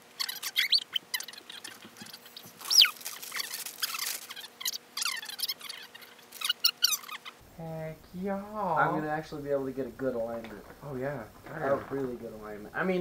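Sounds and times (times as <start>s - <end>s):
sharp falling squeak: 0.0s - 7.4s
plastic bag crinkling: 1.5s - 6.6s.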